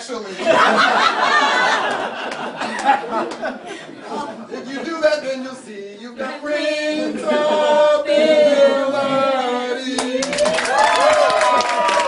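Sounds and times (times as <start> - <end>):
man and woman singing together: 4.8 - 10.7.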